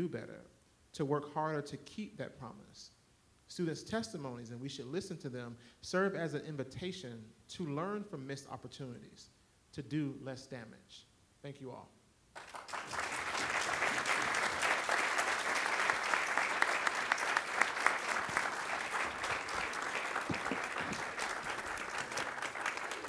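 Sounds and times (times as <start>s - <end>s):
audience applauding: 12.4s - 23.0s.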